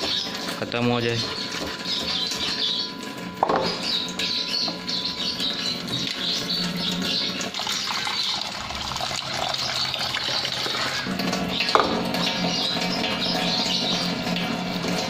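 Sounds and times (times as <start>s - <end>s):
small birds chirping: 0.0s - 8.4s, 12.3s - 14.2s
tap running into bowl: 3.1s - 3.9s, 7.4s - 15.0s
water poured into sink: 7.4s - 15.0s.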